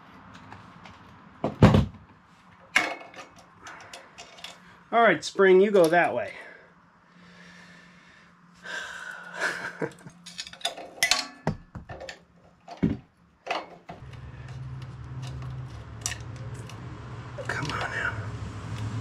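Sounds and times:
metallic clicks and scrapes: 2.7s - 4.8s, 9.9s - 12.8s, 13.4s - 18.0s.

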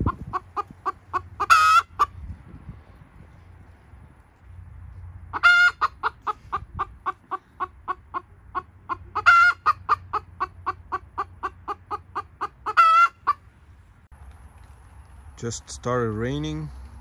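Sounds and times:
chicken clucking: 0.0s - 2.2s, 5.3s - 13.4s
chicken squawking: 0.0s - 2.2s, 5.3s - 13.4s.

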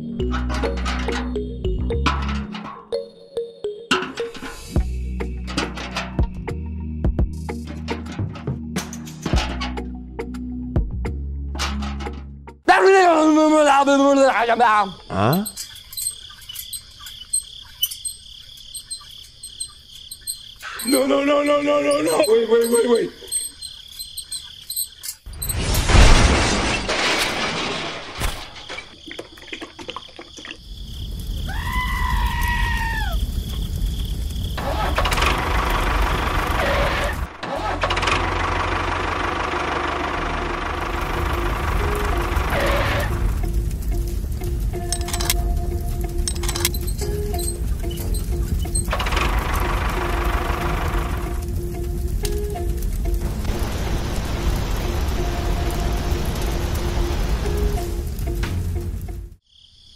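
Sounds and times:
tractor engine running: 0.0s - 2.8s, 3.9s - 12.7s, 13.3s - 25.5s, 33.4s - 59.4s
crickets chirping: 4.4s - 8.0s, 12.8s - 26.0s, 28.1s - 37.2s, 38.4s - 59.9s.

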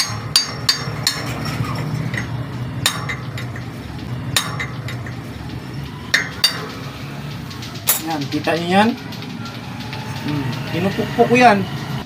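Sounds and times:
metal-on-metal ringing strikes: 0.0s - 5.2s.

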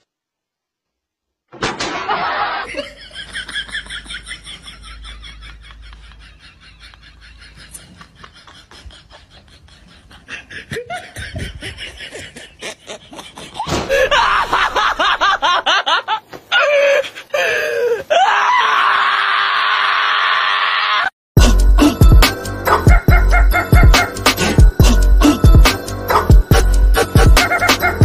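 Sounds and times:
laughter: 1.9s - 17.0s, 22.7s - 24.2s, 27.0s - 28.0s.

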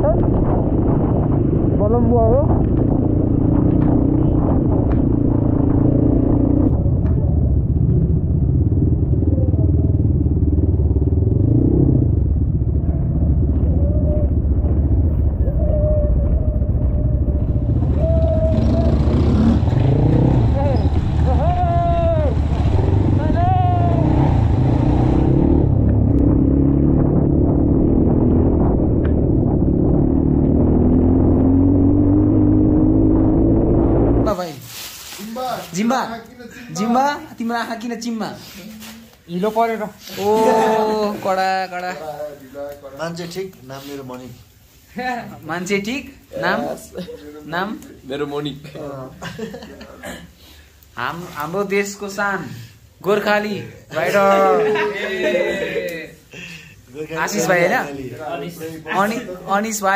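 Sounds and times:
motorcycle engine running: 0.0s - 34.3s.

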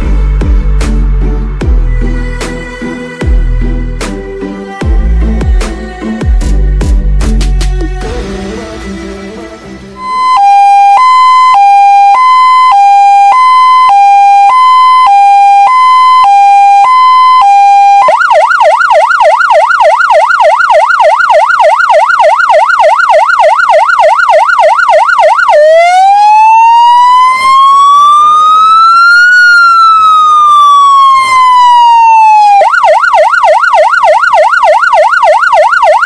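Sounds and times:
fire engine siren: 10.0s - 36.0s.

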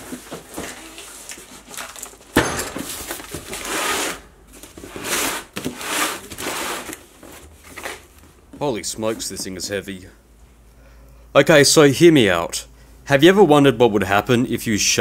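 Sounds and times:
box scraping across bench: 3.6s - 8.0s.

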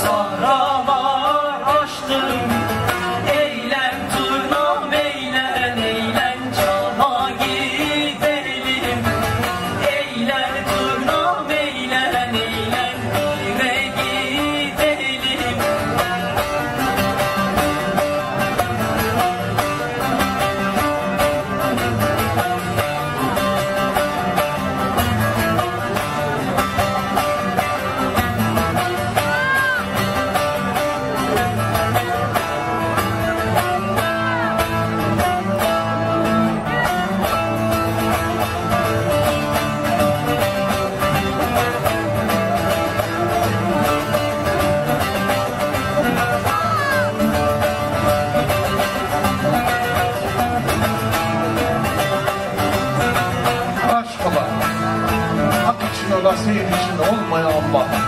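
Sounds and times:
person singing: 0.0s - 19.7s, 25.6s - 41.9s, 45.8s - 47.8s
plucked long-necked lutes: 0.0s - 58.0s.

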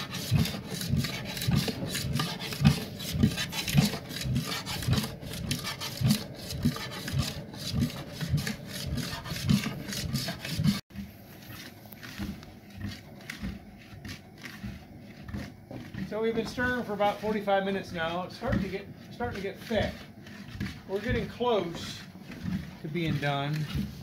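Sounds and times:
paddle scraping a steel kettle: 0.0s - 24.0s.

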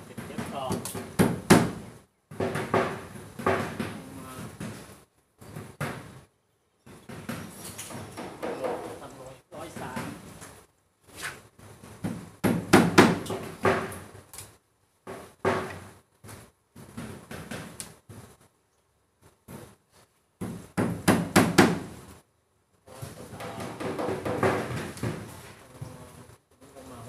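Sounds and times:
knocking against plywood panels: 0.0s - 6.3s, 6.9s - 10.3s, 11.8s - 14.2s, 15.0s - 18.3s, 20.4s - 22.0s, 23.1s - 25.5s.

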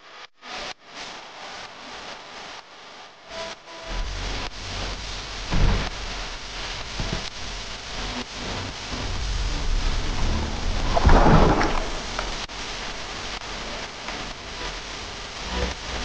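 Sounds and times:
water rushing and sloshing: 10.2s - 13.4s
splashing and bubbling: 10.6s - 13.0s.

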